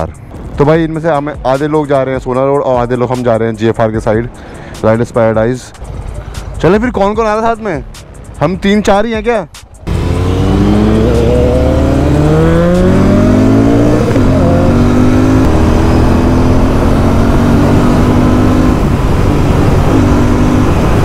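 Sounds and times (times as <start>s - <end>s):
motorcycle engine accelerating: 9.8s - 21.0s
wind noise: 13.6s - 21.0s.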